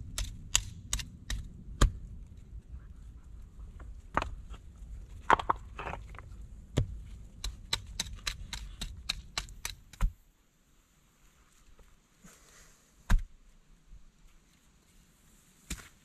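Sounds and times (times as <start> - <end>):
hatchet striking stones: 6.8 - 10.2.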